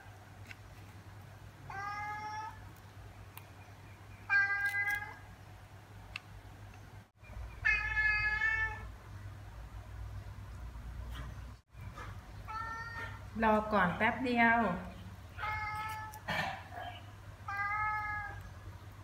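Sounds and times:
cat meowing: 1.7 - 2.6, 7.6 - 8.9, 12.5 - 13.2, 15.4 - 16.3, 17.5 - 18.4.

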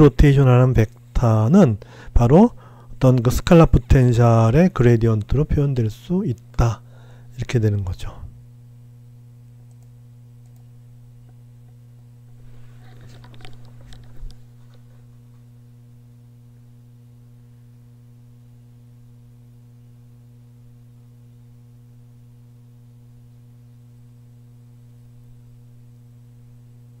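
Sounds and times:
steady low hum: 0.0 - 27.0
rustling and clicks: 12.3 - 15.5.

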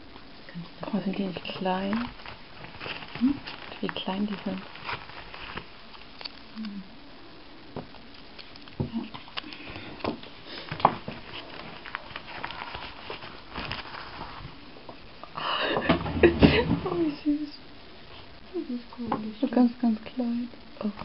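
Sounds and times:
sweet wrapper rustling: 1.2 - 14.8.

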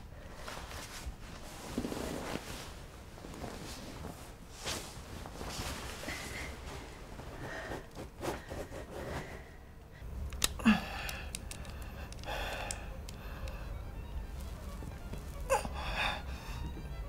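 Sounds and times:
woman breathing: 5.8 - 13.9, 15.4 - 16.8
plastic object clicking: 10.2 - 13.6.

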